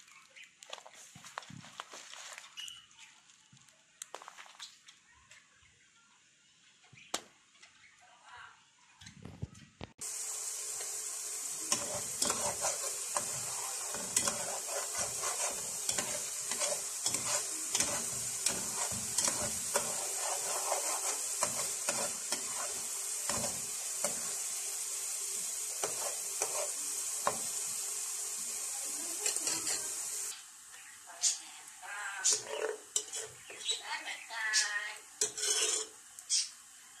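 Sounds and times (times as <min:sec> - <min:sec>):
syrup sizzling hiss: 0:10.0 - 0:37.0
wooden spoon scraping a pot: 0:11.6 - 0:24.4, 0:25.8 - 0:27.5, 0:29.2 - 0:30.0, 0:32.3 - 0:33.8, 0:35.2 - 0:36.0.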